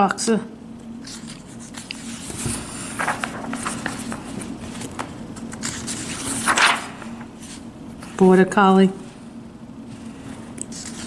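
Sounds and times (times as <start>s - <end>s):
steady low hum: 0.0s - 11.0s
paper pages rustling: 1.0s - 8.4s, 9.9s - 11.0s.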